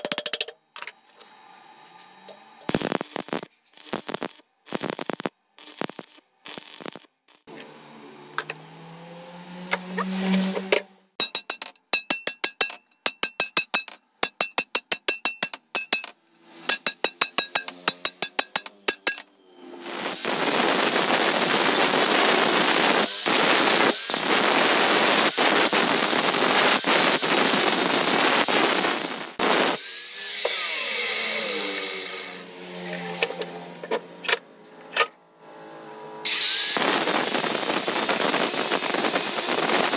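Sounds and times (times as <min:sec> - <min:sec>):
angle grinder grinding steel: 0:02.6 - 0:11.4, 0:15.4 - 0:34.1.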